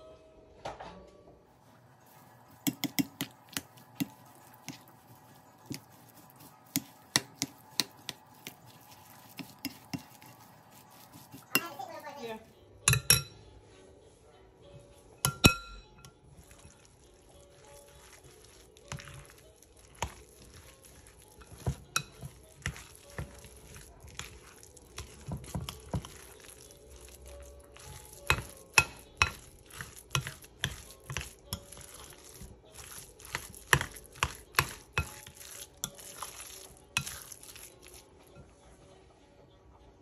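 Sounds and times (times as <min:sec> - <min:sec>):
spoon clinking against glass bowl: 0:02.5 - 0:11.8, 0:12.8 - 0:13.4, 0:15.2 - 0:16.2, 0:21.4 - 0:23.4, 0:27.7 - 0:32.2, 0:32.8 - 0:38.0.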